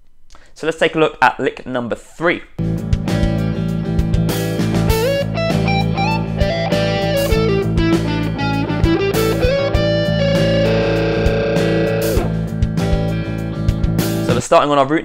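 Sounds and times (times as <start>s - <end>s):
backing track with drums and bass: 2.6s - 14.4s
distorted electric guitar lead: 2.8s - 14.3s.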